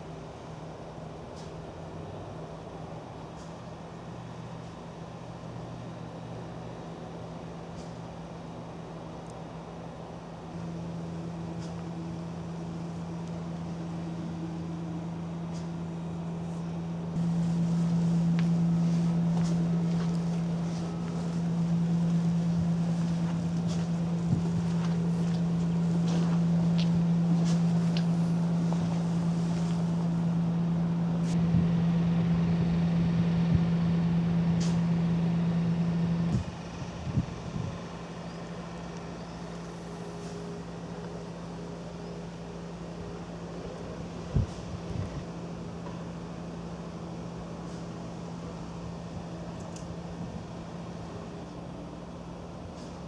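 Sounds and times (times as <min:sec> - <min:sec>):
engine droning: 0:00.0 - 0:53.0
low mechanical hum: 0:00.0 - 0:53.0
wind rumbling on microphone: 0:17.2 - 0:30.0, 0:36.3 - 0:37.9, 0:44.0 - 0:45.4.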